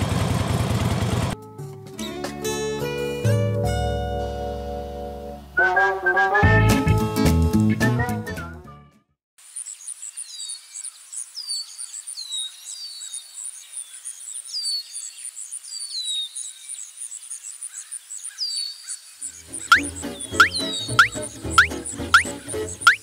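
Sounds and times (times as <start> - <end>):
background music: 1.4 - 9.0, 19.4 - 23.0
birds chirping: 9.7 - 23.0
cricket pulsing: 19.0 - 23.0.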